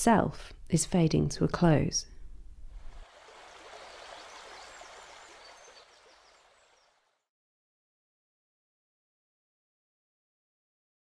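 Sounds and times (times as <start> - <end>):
heavy rain hissing: 2.8 - 6.7.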